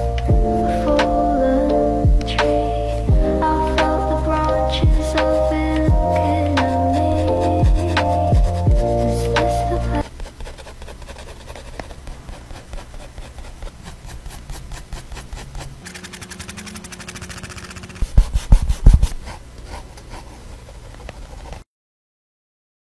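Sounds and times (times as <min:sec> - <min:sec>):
heavy low thumps: 0:00.0 - 0:02.4, 0:03.1 - 0:06.5, 0:07.6 - 0:09.1
pencil scratching on paper: 0:03.6 - 0:21.6.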